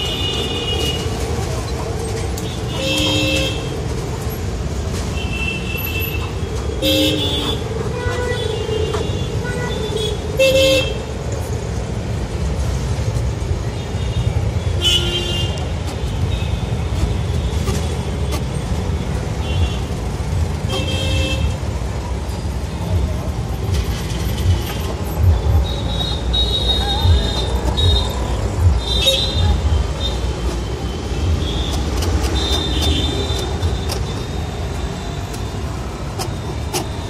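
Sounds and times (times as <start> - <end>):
road traffic rumble: 0.0 - 37.0
vehicle horns honking: 14.0 - 18.5, 20.6 - 21.6, 25.5 - 37.0.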